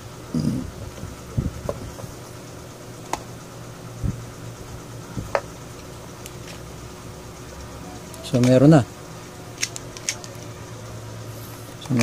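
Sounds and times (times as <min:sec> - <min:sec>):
steady low hum: 0:00.0 - 0:12.0
fan switch clicks and knocks: 0:00.9 - 0:02.1, 0:03.0 - 0:03.3, 0:05.1 - 0:05.5.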